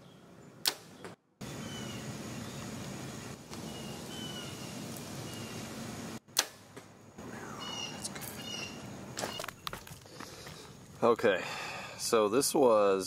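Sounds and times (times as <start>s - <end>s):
bow string snapping: 0.6s - 1.2s, 6.3s - 6.9s.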